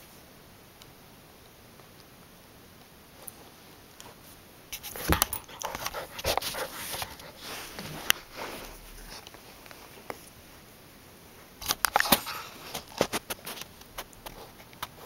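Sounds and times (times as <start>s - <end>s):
plush toy rustling: 4.1s - 10.4s
puppy sniffing: 4.8s - 9.4s.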